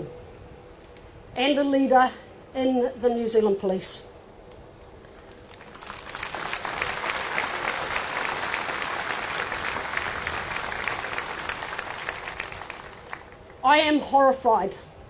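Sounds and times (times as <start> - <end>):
crowd applauding: 5.3 - 13.5.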